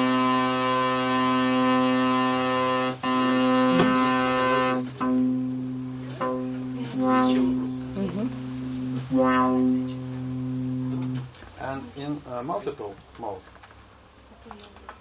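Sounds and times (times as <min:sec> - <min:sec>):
buzzy synthesizer note: 0:00.0 - 0:11.3.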